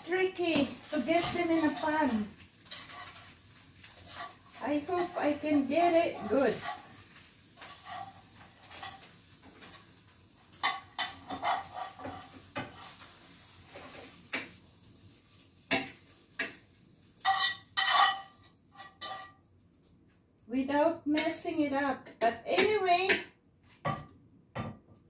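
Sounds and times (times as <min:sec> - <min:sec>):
spatula scraping frying pan: 0:00.0 - 0:19.4
spatula knocking on pan: 0:15.7 - 0:16.6, 0:22.1 - 0:24.9.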